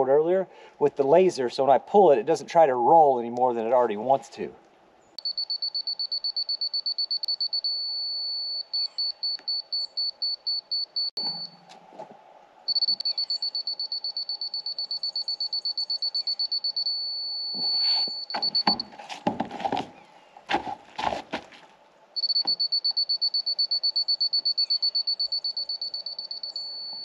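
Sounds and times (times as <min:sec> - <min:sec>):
high-pitched receiver beeps: 0:12.7 - 0:18.8, 0:22.2 - 0:27.0
knocks and thumps: 0:18.3 - 0:21.6.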